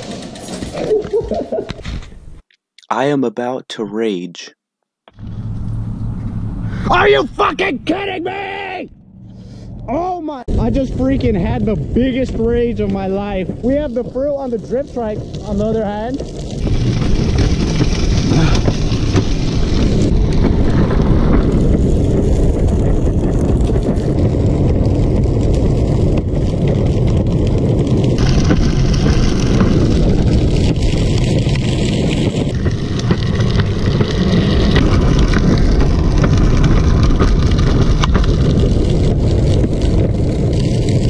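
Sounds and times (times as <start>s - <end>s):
wheels rolling on concrete: 0.0s - 2.4s, 10.5s - 41.0s
wind buffeting microphone: 5.2s - 41.0s.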